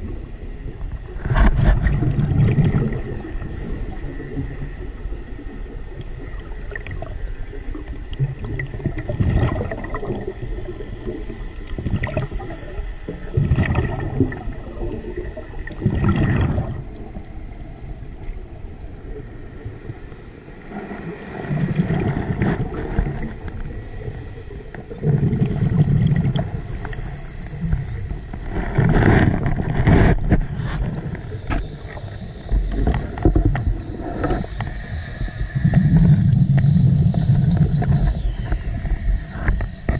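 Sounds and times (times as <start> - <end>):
regulator bubbles gurgling: 0.0 - 39.9
regulator air hiss: 3.3 - 5.5, 17.0 - 21.5, 22.8 - 25.0, 26.5 - 28.5, 30.9 - 39.9.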